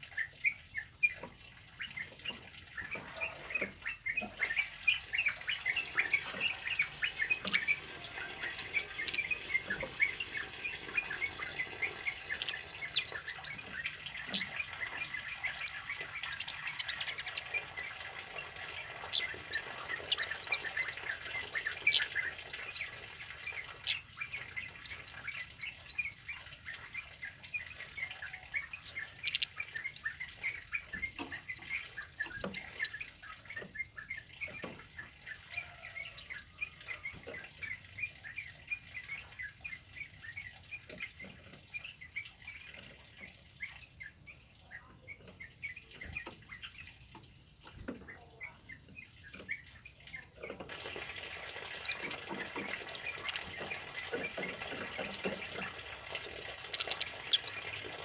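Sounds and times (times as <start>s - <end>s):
songbird chirping and twittering: 0.0s - 58.0s.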